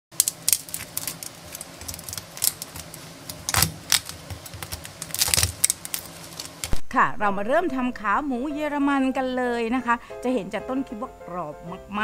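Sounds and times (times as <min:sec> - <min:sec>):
knife crunching through crispy skin: 0:00.2 - 0:06.8.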